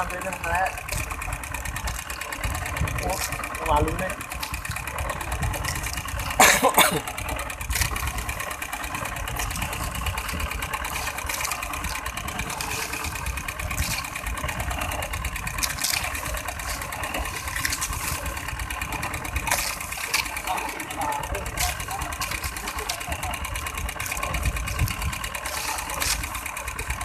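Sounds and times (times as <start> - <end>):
boat engine idling: 0.0 - 27.0
knocks and splashes: 9.2 - 27.0.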